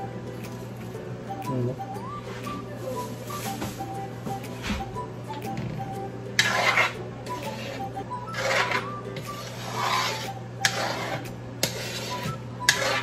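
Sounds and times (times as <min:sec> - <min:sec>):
spoon scraping a metal wok: 0:06.4 - 0:13.0.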